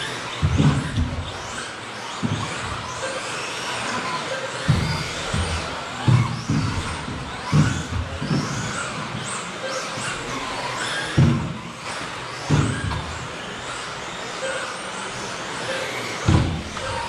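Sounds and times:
rc car motors whining: 0.0s - 17.0s
dull thuds: 0.3s - 1.6s, 4.6s - 9.4s, 11.1s - 11.7s, 16.2s - 17.0s.

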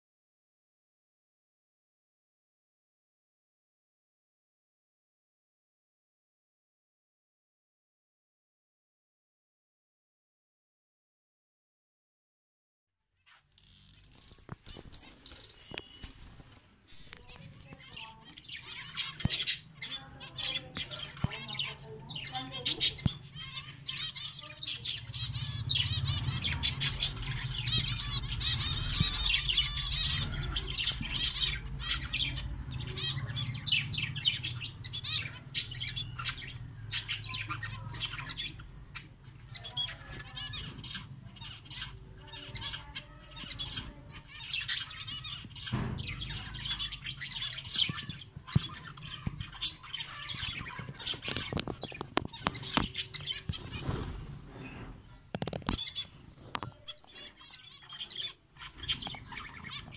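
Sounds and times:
birds chirping and twittering: 13.6s - 59.9s.

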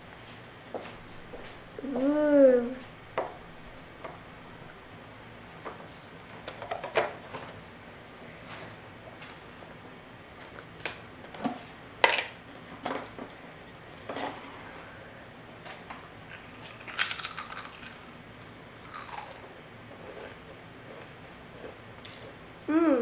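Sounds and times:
crisp crunching being chewed: 16.3s - 18.2s, 18.8s - 21.8s.

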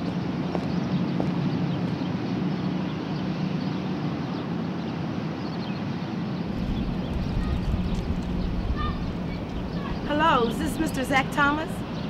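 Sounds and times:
deeper rumble: 6.5s - 12.0s
low hum: 6.5s - 12.0s.

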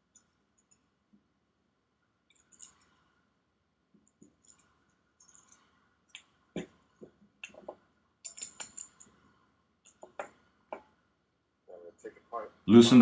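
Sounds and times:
metal clicks and clinks on wood: 2.3s - 3.0s, 4.1s - 9.2s.

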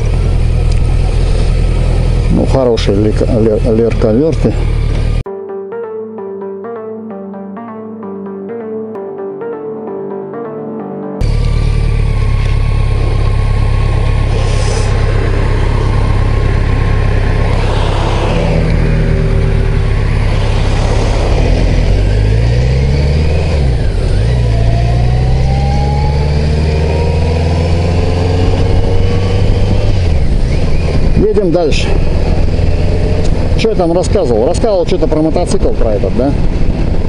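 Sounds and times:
motorcycle engine running: 0.0s - 5.2s, 11.2s - 34.2s
rushing wind noise: 14.2s - 37.0s.

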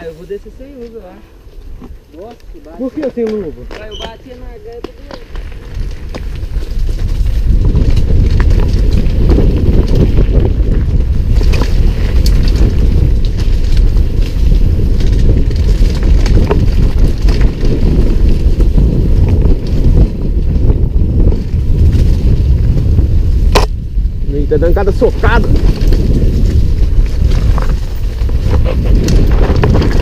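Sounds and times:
wind buffeting microphone: 0.0s - 30.0s
bike clicks and knocks: 1.7s - 22.1s, 23.4s - 23.8s.

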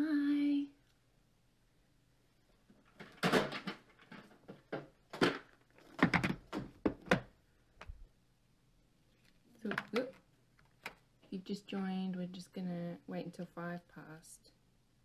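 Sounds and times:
plastic items clicking on a desk: 9.2s - 11.0s.

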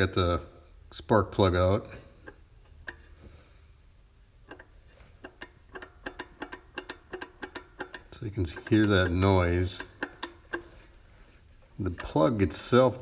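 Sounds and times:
sharp metallic engine clicks: 4.4s - 11.0s.

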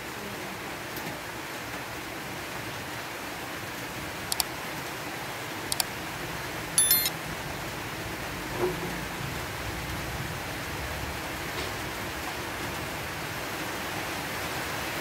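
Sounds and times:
double mouse click: 6.8s - 7.1s
short bright bell chime: 6.8s - 7.1s.

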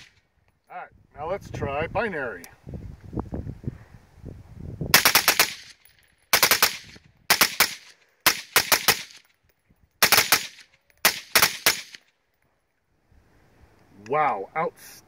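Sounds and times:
suppressed pistol shots: 10.0s - 12.0s.

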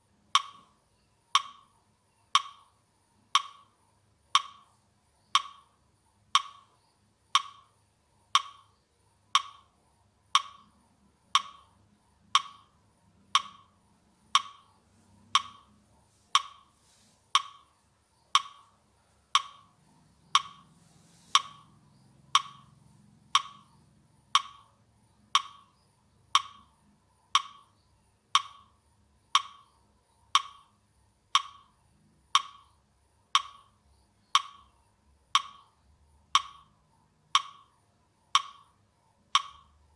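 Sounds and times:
steady ticking beat: 0.0s - 39.9s.

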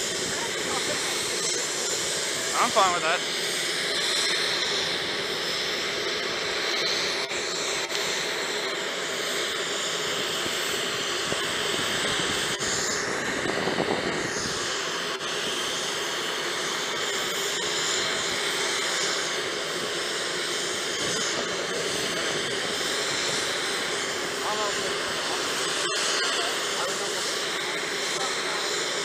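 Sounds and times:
broad rushing noise: 0.0s - 8.9s
jet turbine whine: 0.0s - 29.0s.

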